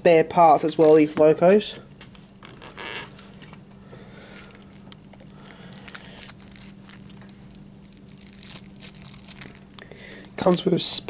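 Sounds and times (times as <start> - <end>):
faint steady hum: 0.0 - 11.0
packaging crinkling and rustling: 2.0 - 10.7.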